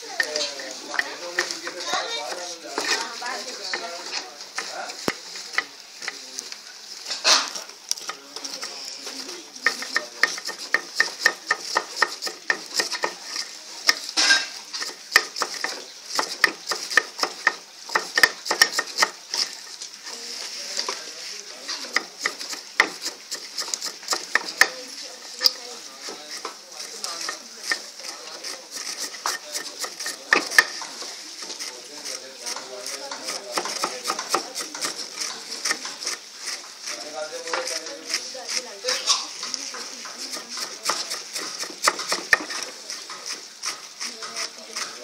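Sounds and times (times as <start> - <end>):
steady hiss: 0.0 - 45.0
knives chopping on wooden board: 9.6 - 19.5, 21.9 - 24.8, 26.9 - 31.7, 32.5 - 38.6, 40.1 - 44.9.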